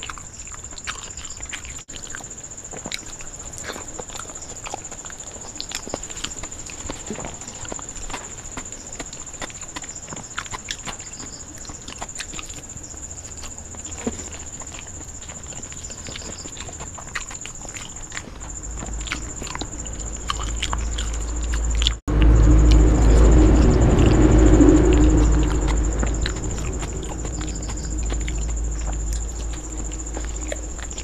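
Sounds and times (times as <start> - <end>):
chewing sounds: 0.0 - 31.0
thin high whine: 19.2 - 31.0.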